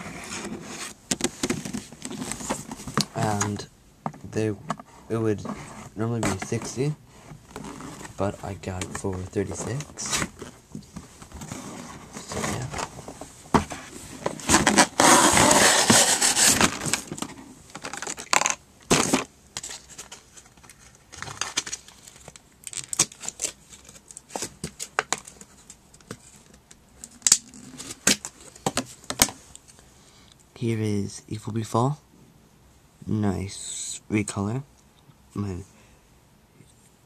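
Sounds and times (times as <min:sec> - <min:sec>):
clicks crackles and rustles: 0:16.7 - 0:29.8
packaging ripping: 0:21.1 - 0:24.8.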